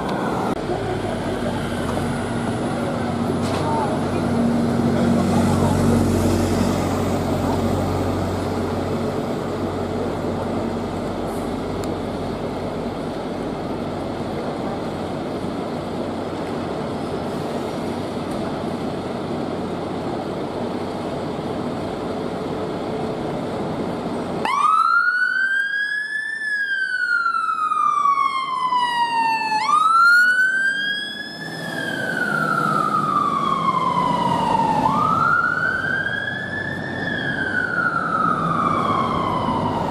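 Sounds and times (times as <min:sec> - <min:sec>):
engine and street rumble: 0:00.0 - 0:39.9
fire engine siren wailing: 0:24.4 - 0:39.9.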